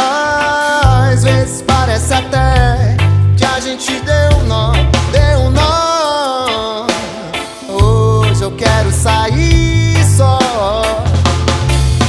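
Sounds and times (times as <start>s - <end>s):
electric bass line: 0.0s - 6.0s, 7.0s - 12.0s
reggae band playing live: 0.0s - 12.0s.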